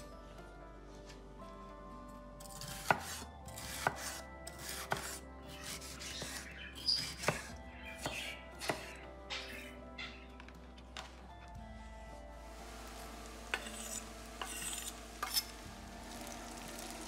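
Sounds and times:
soft background music: 0.0 - 17.0
knife chopping on cutting board: 2.6 - 6.4, 7.0 - 8.9.

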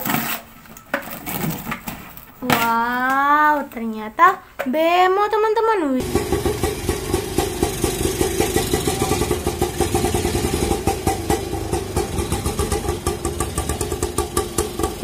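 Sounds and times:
three-wheeler engine idling: 6.0 - 15.0.

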